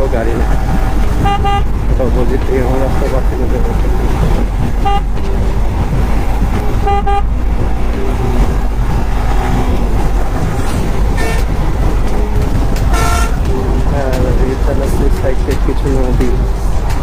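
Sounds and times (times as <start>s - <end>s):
motorcycle engine running: 0.0s - 17.0s
wind noise on helmet microphone: 0.0s - 17.0s
vehicle horn toots: 1.1s - 1.8s, 4.8s - 5.3s, 6.6s - 7.4s, 11.1s - 11.6s, 12.8s - 13.5s.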